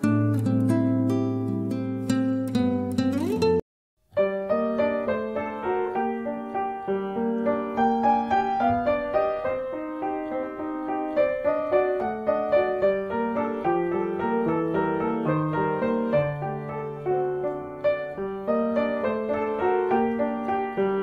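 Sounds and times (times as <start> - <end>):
slow piano melody: 0.0 - 21.0.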